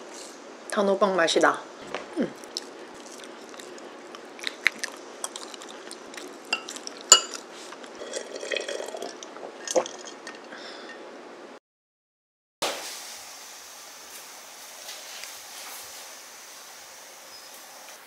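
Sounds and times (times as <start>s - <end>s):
fork clinking on plate: 6.5s - 7.4s.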